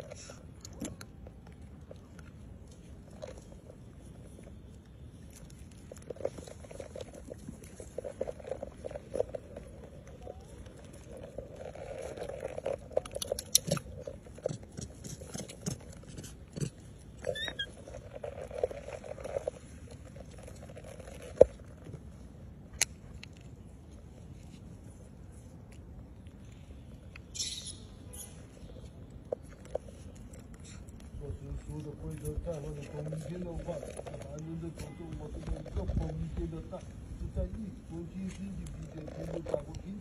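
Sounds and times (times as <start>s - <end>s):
monkey chewing and clicking: 0.0s - 40.0s
monkey squeak: 17.2s - 17.8s, 27.3s - 28.5s.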